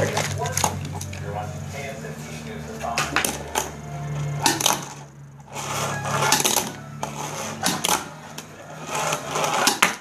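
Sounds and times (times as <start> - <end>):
small wheels rolling on table: 4.2 - 10.0.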